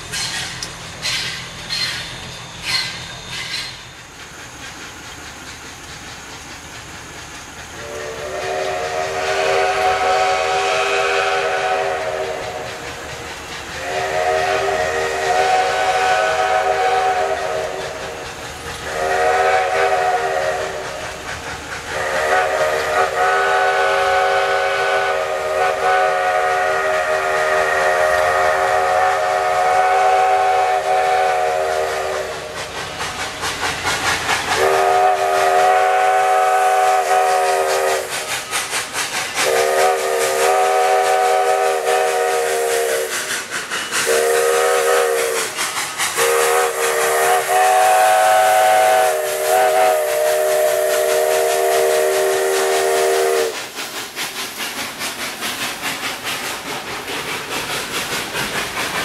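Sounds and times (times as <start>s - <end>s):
steam locomotive chime whistle: 0.0s - 4.2s, 7.8s - 21.1s, 21.9s - 32.6s, 34.6s - 38.5s, 39.4s - 43.3s, 43.9s - 53.6s
steam hissing: 0.0s - 59.0s.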